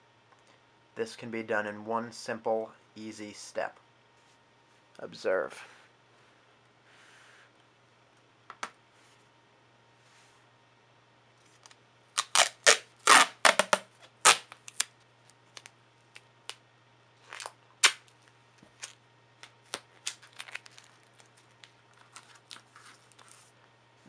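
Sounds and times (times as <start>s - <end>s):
tape crinkling and clicks: 11.4s - 16.6s, 17.2s - 23.5s
duct tape ripping: 11.6s - 14.9s, 17.2s - 23.3s.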